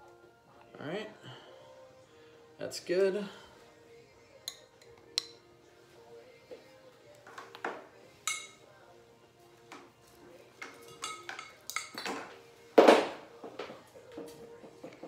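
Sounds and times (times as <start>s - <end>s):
quiet background music: 0.0s - 15.0s
hard objects knocking and clinking: 10.6s - 15.0s.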